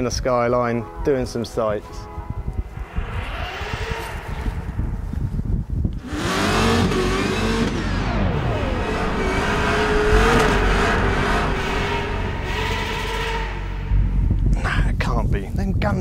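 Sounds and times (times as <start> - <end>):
car engines revving: 2.5 - 5.2, 5.9 - 14.5.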